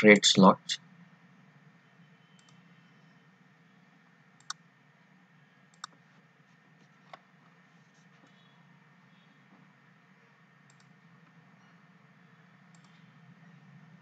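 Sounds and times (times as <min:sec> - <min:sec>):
faint background noise: 0:00.0 - 0:14.0
computer mouse clicks: 0:02.4 - 0:02.6, 0:04.4 - 0:04.6, 0:05.7 - 0:06.0, 0:10.6 - 0:11.4, 0:12.7 - 0:13.1.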